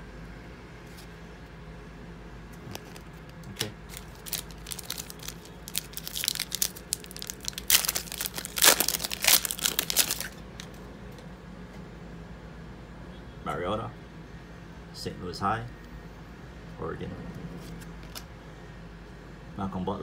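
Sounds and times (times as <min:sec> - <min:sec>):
foil wrapper tearing and crinkling: 0:02.8 - 0:10.4.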